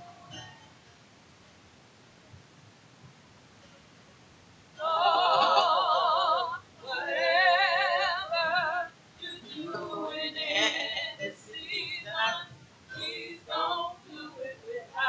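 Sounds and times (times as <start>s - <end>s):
woman singing with vibrato: 4.8s - 15.0s.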